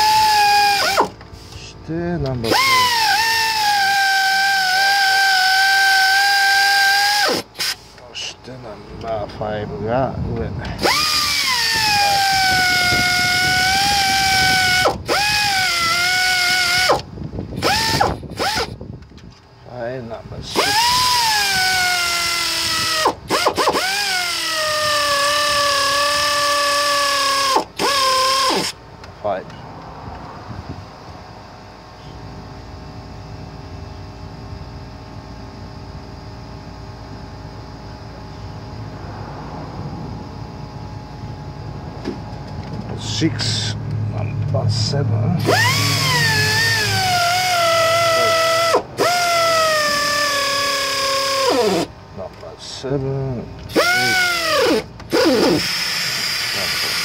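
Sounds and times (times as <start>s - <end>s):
pneumatic air ratchet whining: 0.0s - 1.7s, 2.4s - 8.1s, 10.7s - 19.3s, 20.4s - 28.8s, 45.4s - 52.0s, 53.6s - 57.0s
faint tonal hum: 0.0s - 56.7s
low background rumble: 7.4s - 55.2s.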